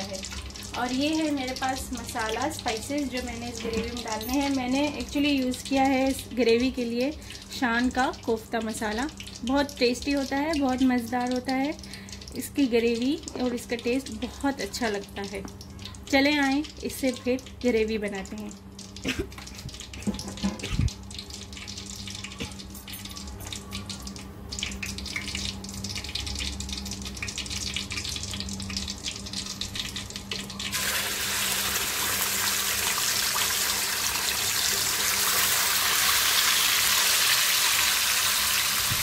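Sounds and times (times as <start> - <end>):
hot oil crackling in a pan: 0.0 - 39.0
paste sizzling in oil: 30.7 - 39.0.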